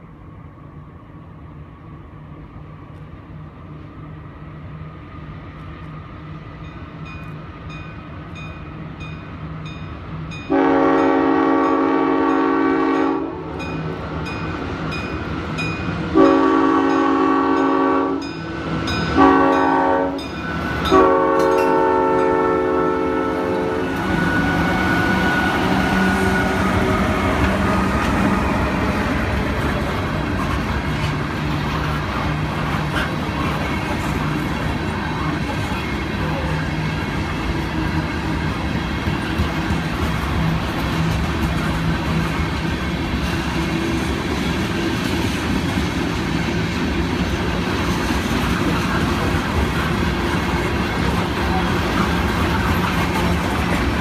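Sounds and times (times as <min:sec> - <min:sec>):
diesel locomotive engine rumble: 0:00.0 - 0:54.0
train wheels on rails: 0:00.0 - 0:54.0
train horn: 0:10.5 - 0:13.7, 0:16.1 - 0:18.4, 0:19.1 - 0:28.8.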